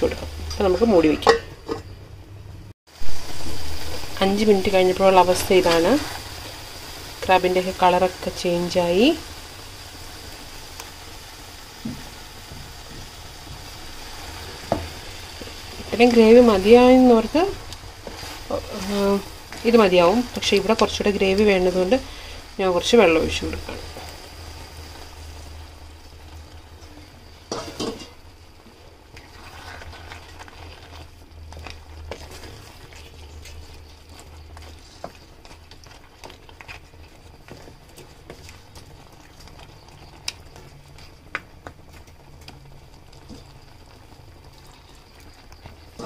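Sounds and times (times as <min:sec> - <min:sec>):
spatula stirring simmering gravy: 0:09.4 - 0:46.0.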